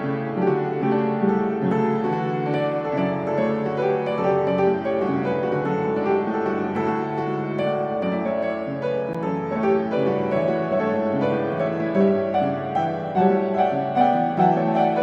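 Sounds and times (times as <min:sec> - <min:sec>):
gentle piano melody: 0:00.0 - 0:15.0.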